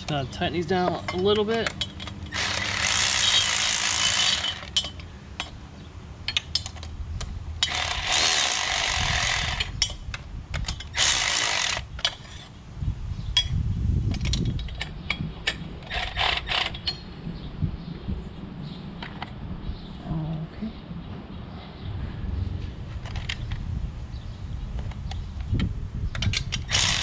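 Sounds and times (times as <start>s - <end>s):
electric ratchet running: 2.3s - 4.7s, 7.6s - 9.8s, 10.9s - 11.9s, 26.6s - 27.0s.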